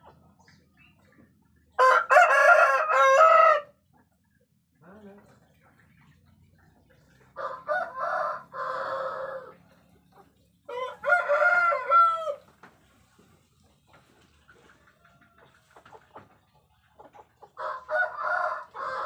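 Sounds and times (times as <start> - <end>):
rooster crowing: 1.8 - 3.7, 7.4 - 9.5, 10.7 - 12.4, 17.6 - 19.0.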